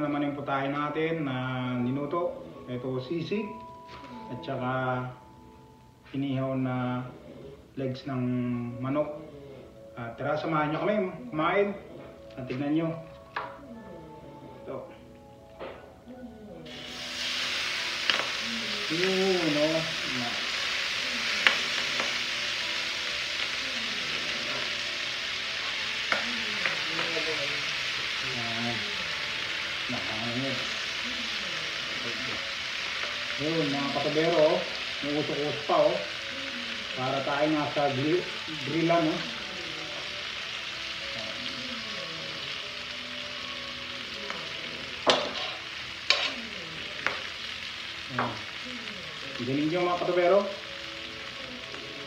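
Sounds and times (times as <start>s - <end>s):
food sizzling on hot plate: 0.0s - 9.8s, 10.4s - 52.0s
metal spoon clinking on plates: 45.0s - 46.4s.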